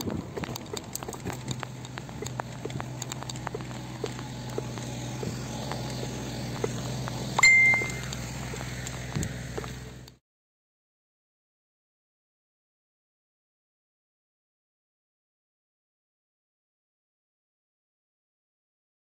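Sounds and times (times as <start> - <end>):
mountain bike rolling on trail: 0.0 - 10.2
small clicks and rattles: 0.0 - 10.2
sharp metallic ding: 7.4 - 8.0.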